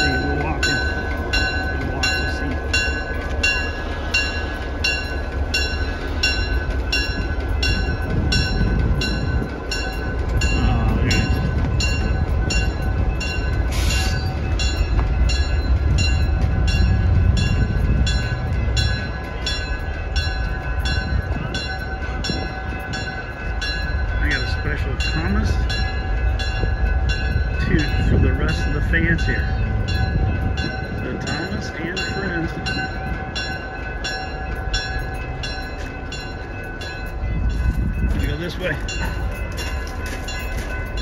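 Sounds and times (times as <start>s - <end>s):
bell ringing: 0.0s - 41.0s
diesel locomotive engine rumbling: 0.0s - 41.0s.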